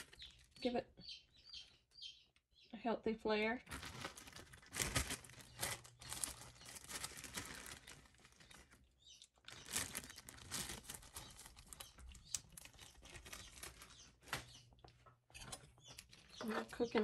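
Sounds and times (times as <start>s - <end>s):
plastic bag crinkling: 3.6s - 17.0s.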